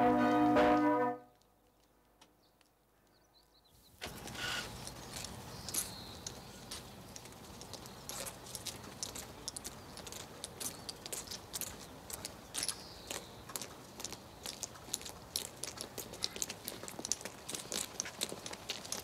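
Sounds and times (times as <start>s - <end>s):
boots footsteps on cobblestones: 4.1s - 19.0s.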